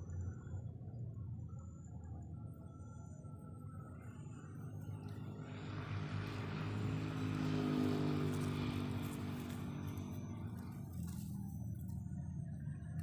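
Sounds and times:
engine passing by: 0:04.5 - 0:13.0.

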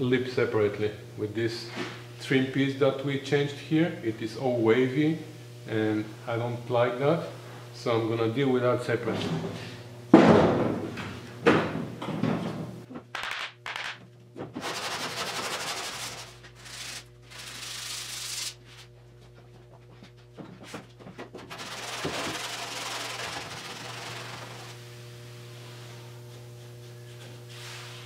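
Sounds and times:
hand sanding on metal: 0:14.6 - 0:18.9, 0:21.5 - 0:24.8.

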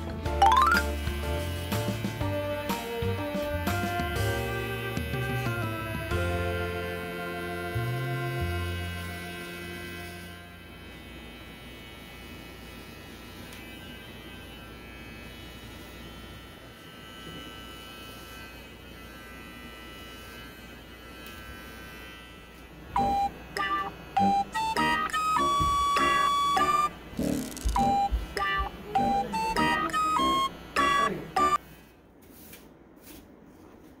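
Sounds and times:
music: 0:00.0 - 0:10.6, 0:23.0 - 0:31.6
bright keyboard notes: 0:00.3 - 0:01.0, 0:23.0 - 0:31.6
electric hair clippers buzzing: 0:00.5 - 0:31.6.

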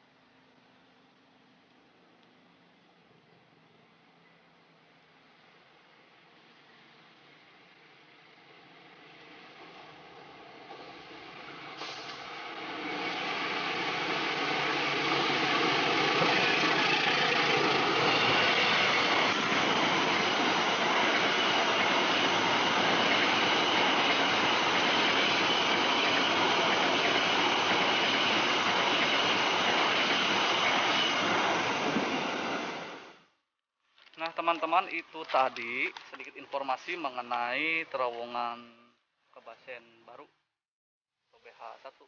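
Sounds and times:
diesel locomotive engine: 0:06.6 - 0:33.3
train wheels rumbling on rail: 0:09.6 - 0:33.2.

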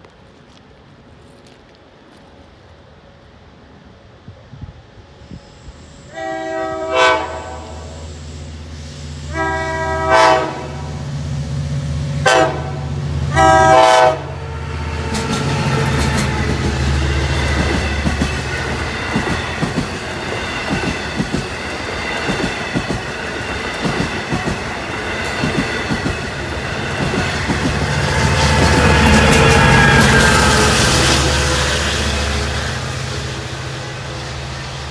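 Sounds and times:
train horn: 0:06.1 - 0:08.0, 0:09.3 - 0:11.0, 0:12.2 - 0:16.5
train wheels clattering: 0:15.0 - 0:32.7.

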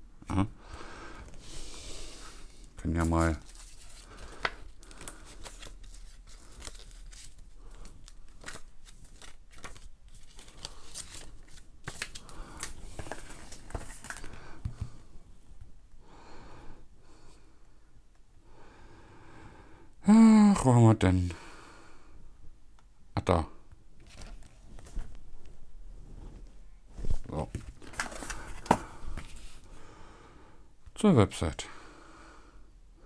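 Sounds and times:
paper and cardboard rustling: 0:02.9 - 0:14.4, 0:24.0 - 0:25.1, 0:27.0 - 0:29.6.

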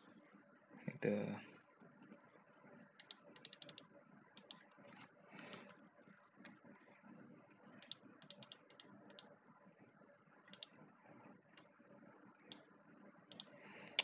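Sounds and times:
keyboard keystrokes: 0:03.0 - 0:05.0, 0:07.8 - 0:09.3, 0:13.3 - 0:13.5.

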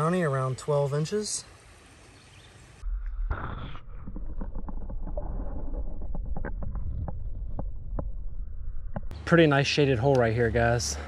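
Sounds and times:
muffled underwater water rumble: 0:02.8 - 0:09.1
sharp underwater clicks and knocks: 0:03.9 - 0:09.1.

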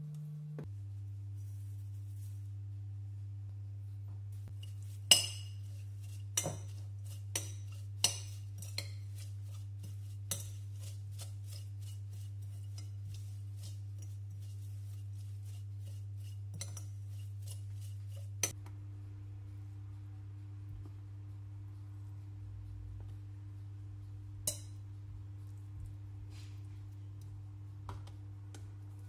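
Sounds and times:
steady low hum: 0:00.0 - 0:29.0
metal spoon clinking glass bowl: 0:04.6 - 0:14.6, 0:16.5 - 0:18.6, 0:24.4 - 0:24.8.

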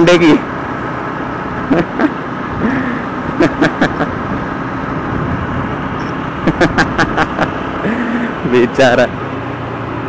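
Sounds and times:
motorcycle engine: 0:00.0 - 0:10.0
wind noise on microphone: 0:04.1 - 0:06.2.

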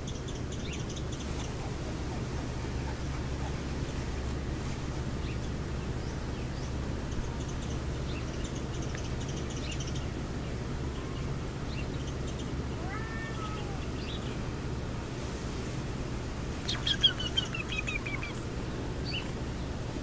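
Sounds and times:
small birds chirping: 0:00.0 - 0:14.6, 0:16.2 - 0:20.0
steady low hum: 0:00.0 - 0:20.0
kitten meowing: 0:12.8 - 0:13.9.

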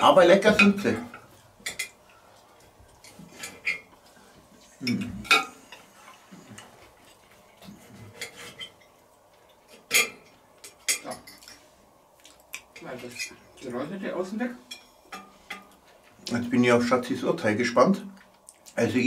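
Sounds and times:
fork clinking against plate: 0:09.8 - 0:11.6.

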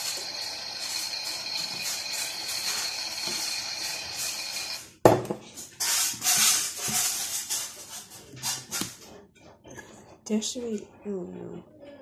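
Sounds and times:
washing machine hiss: 0:00.0 - 0:04.8
thin high whine: 0:00.0 - 0:04.9.

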